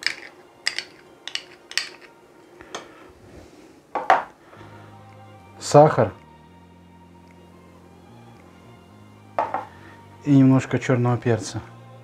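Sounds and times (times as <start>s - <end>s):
spoon clinking against bowl: 0.0s - 2.1s.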